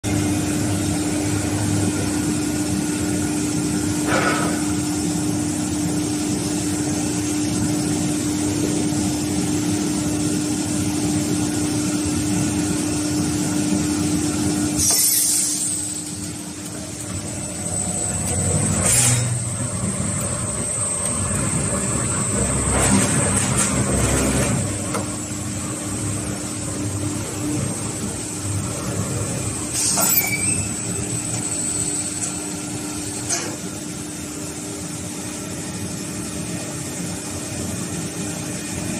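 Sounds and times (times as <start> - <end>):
pipe cutting machine humming: 0.1 - 35.8
pneumatic air hiss: 14.8 - 16.1, 29.7 - 30.6.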